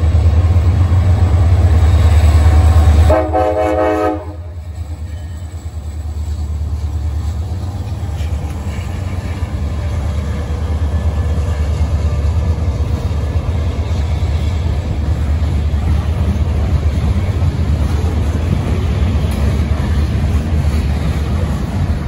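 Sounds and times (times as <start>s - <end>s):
freight train rumbling on rails: 0.0s - 22.0s.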